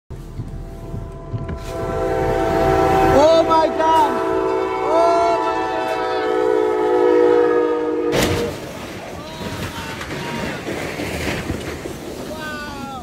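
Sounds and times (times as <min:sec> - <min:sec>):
train horn: 0:00.7 - 0:08.7.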